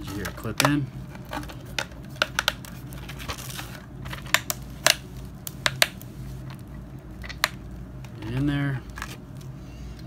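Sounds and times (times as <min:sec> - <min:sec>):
plastic cover clicks and knocks: 0:00.1 - 0:02.7, 0:05.6 - 0:06.0.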